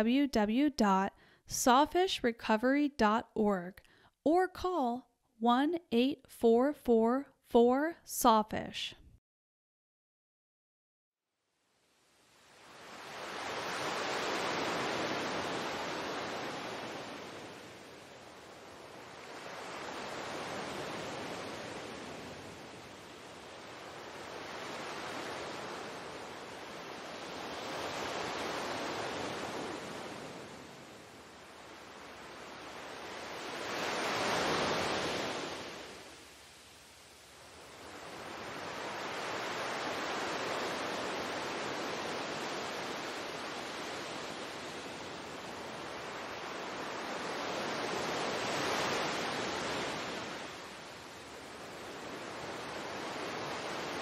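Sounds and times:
ocean waves washing in: 11.9 - 54.0.

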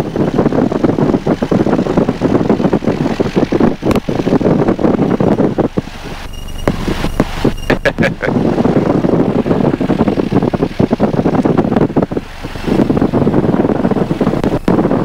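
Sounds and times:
aircraft engine and propeller rumble: 0.0 - 15.0
sharp click: 3.8 - 4.1.

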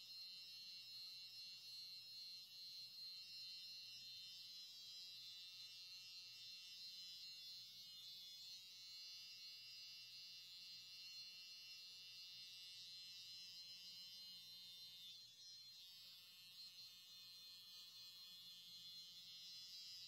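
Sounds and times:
electric hair clippers buzzing: 8.0 - 20.0.

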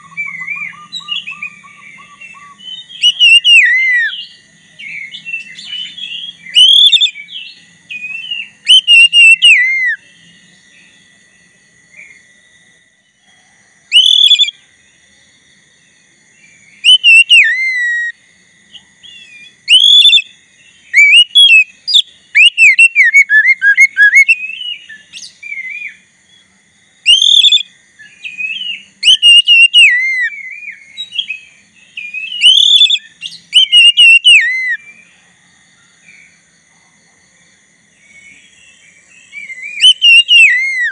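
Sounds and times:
bird singing whistled phrases: 0.0 - 10.4, 13.9 - 14.6, 16.8 - 18.2, 19.0 - 20.3, 20.9 - 26.0, 27.0 - 34.9, 39.2 - 40.9
faint steady high buzz: 0.0 - 40.9.

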